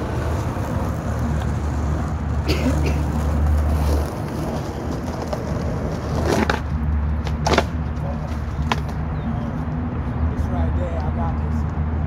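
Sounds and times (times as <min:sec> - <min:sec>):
skateboard clacking on concrete curb: 0:00.0 - 0:09.0.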